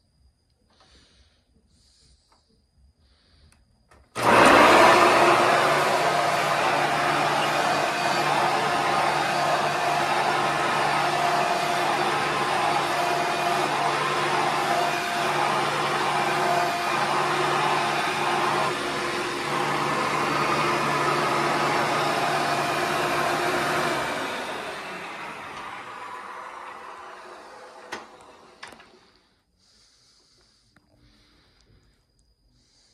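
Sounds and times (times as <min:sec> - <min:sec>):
motor winding down: 0:04.1 - 0:29.0
vacuum cleaner running: 0:04.1 - 0:29.2.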